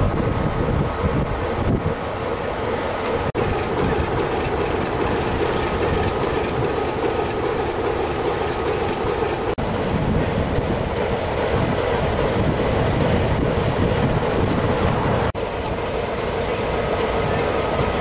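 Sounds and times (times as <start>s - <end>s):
diesel locomotive engine rumble: 0.0s - 18.0s.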